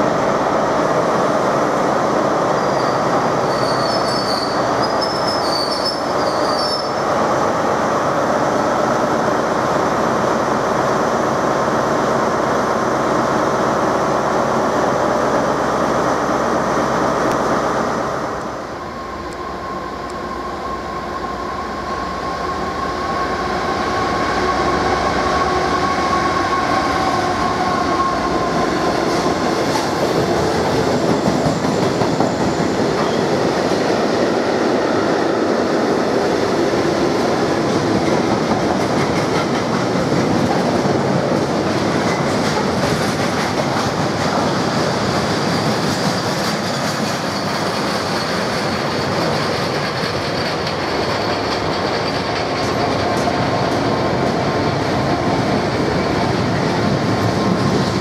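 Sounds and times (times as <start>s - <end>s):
freight train rolling past: 0.0s - 58.0s
train wheel squeal: 2.5s - 7.1s, 30.8s - 33.4s, 45.2s - 53.3s.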